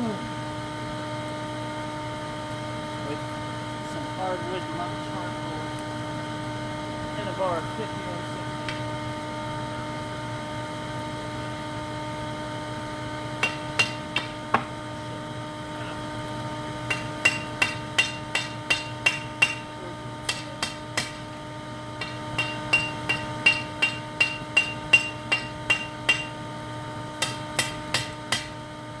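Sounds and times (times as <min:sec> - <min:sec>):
shop vac humming: 0:00.0 - 0:29.0
hammer striking steel on anvil: 0:13.4 - 0:14.7, 0:16.8 - 0:21.3, 0:22.0 - 0:26.4, 0:27.2 - 0:28.6.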